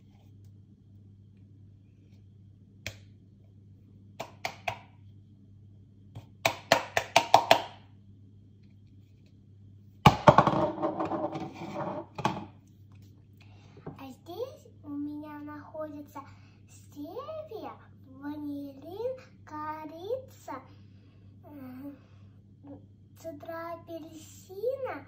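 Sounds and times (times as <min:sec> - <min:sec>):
faint low hum: 0:00.0 - 0:25.0
taps and knocks on kitchen counter: 0:06.2 - 0:07.7, 0:10.1 - 0:11.5, 0:12.2 - 0:12.5
clatter on kitchen counter: 0:10.1 - 0:12.6.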